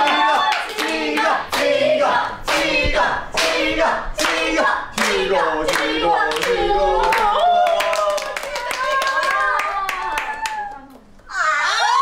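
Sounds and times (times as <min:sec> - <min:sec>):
people clapping in time: 0:00.0 - 0:01.8, 0:02.4 - 0:11.2
group chanting: 0:00.0 - 0:09.4.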